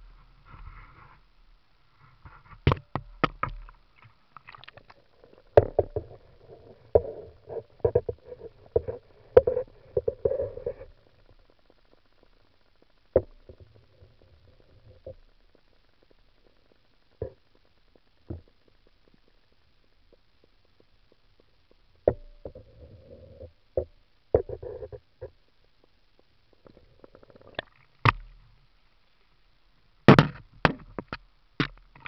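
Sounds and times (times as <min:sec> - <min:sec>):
camera knocking underwater: 0:02.5 - 0:10.8, 0:26.7 - 0:28.4, 0:30.1 - 0:32.0.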